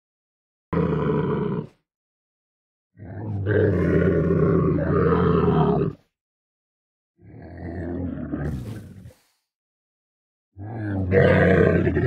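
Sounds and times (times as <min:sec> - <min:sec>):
camel grunting: 0:03.1 - 0:06.0, 0:10.9 - 0:12.0.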